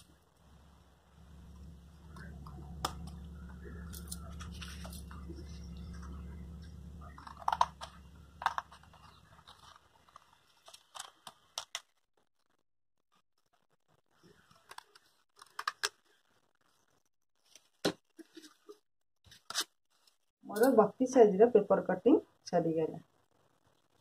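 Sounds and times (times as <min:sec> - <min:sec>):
low steady hum: 0:00.0 - 0:11.3
paper crinkling and rustling: 0:01.5 - 0:12.0, 0:14.2 - 0:16.8.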